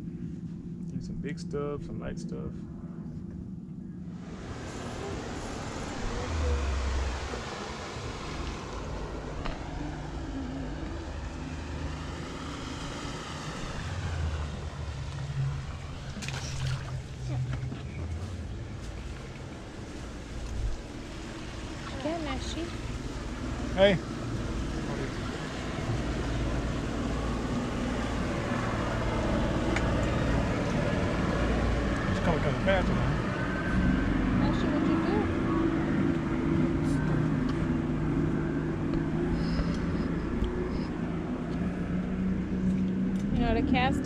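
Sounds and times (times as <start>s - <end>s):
distant engine drone: 0.0s - 44.0s
outboard motor idling: 0.0s - 44.0s.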